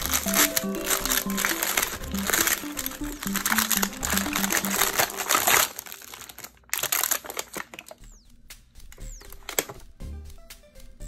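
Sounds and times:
plastic wrapper crinkling: 0:00.0 - 0:08.1, 0:09.2 - 0:09.8.

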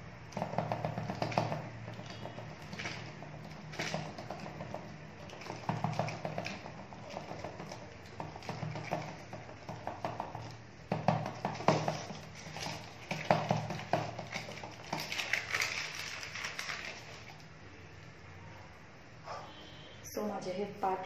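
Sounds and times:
hands patting dough: 0:00.0 - 0:17.5
plastic sheet crinkling: 0:11.6 - 0:17.5.

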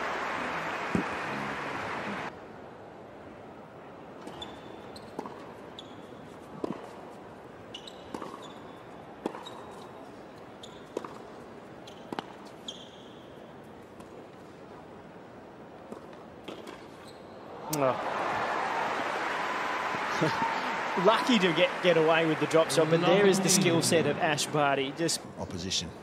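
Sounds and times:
arena background noise: 0:00.0 - 0:26.0
tennis shoes squeaking: 0:04.2 - 0:13.5, 0:16.5 - 0:17.4
tennis ball bouncing: 0:06.6 - 0:07.0, 0:07.9 - 0:08.5, 0:09.2 - 0:09.8, 0:10.9 - 0:12.5.

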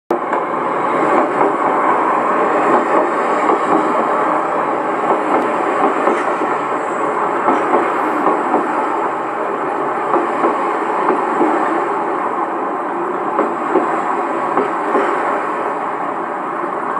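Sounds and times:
clatter of train wheels: 0:00.1 - 0:12.5, 0:13.1 - 0:15.8
train rumbling: 0:00.1 - 0:16.9.

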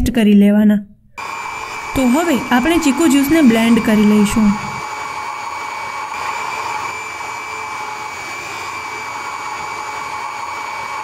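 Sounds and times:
immersion blender whining: 0:01.2 - 0:11.0.

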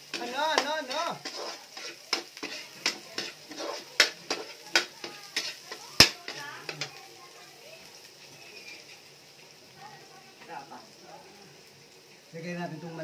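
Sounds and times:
spatula clacking against pan: 0:00.0 - 0:07.0
food sizzling in a wok: 0:00.0 - 0:13.0.

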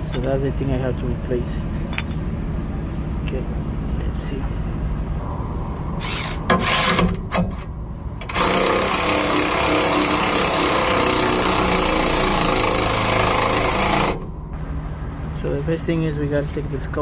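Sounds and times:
handheld power tool running: 0:08.2 - 0:14.3.

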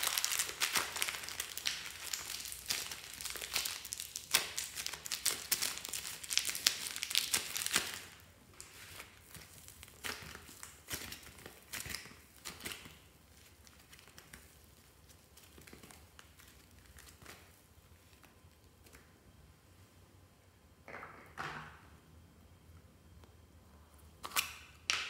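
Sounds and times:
slime crackling when squeezed: 0:00.0 - 0:14.5.

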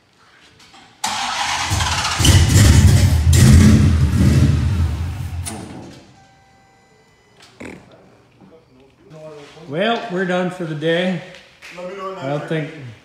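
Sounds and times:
car engine cranking and running: 0:01.0 - 0:05.9.

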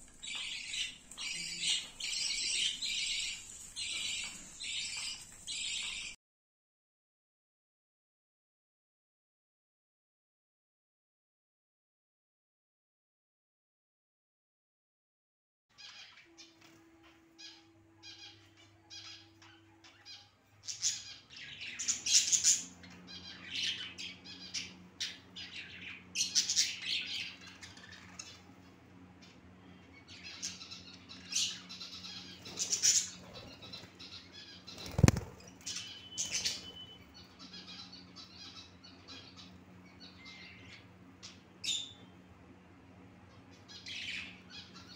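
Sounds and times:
faint steady hum: 0:00.0 - 0:06.2, 0:15.8 - 0:44.9
wings fluttering: 0:00.0 - 0:06.2, 0:32.3 - 0:36.9
budgerigars chattering and chirping: 0:00.1 - 0:06.2, 0:17.0 - 0:28.6, 0:29.2 - 0:42.1, 0:43.3 - 0:44.9.

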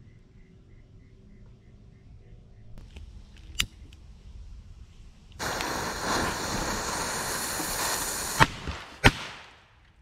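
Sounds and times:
firecracker fuse hissing: 0:05.4 - 0:09.4.

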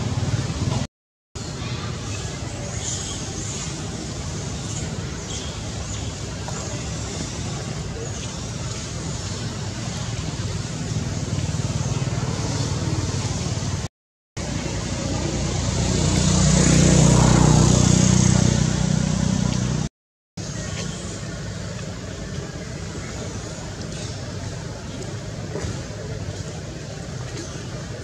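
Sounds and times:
vehicle passing: 0:10.9 - 0:19.9.

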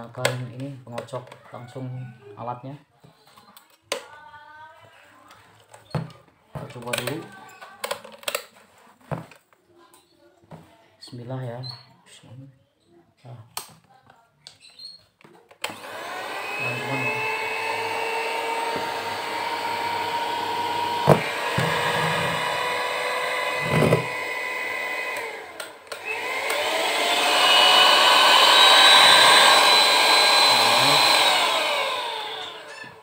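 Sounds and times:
hand mixer motor whining: 0:15.6 - 0:33.0.

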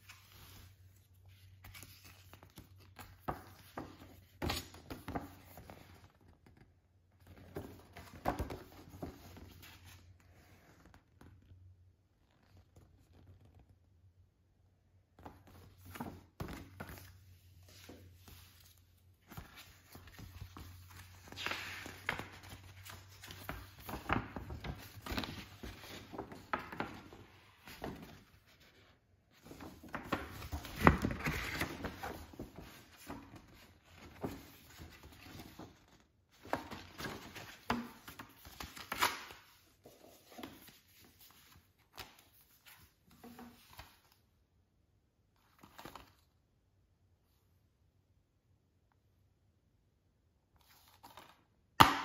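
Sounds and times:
paper rustling and crinkling: 0:00.0 - 0:06.6, 0:15.4 - 0:44.2.

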